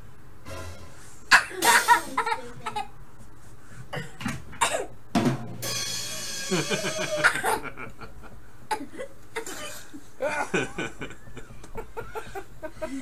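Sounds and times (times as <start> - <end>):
people chuckling and laughing: 6.5 - 8.4, 10.2 - 13.0.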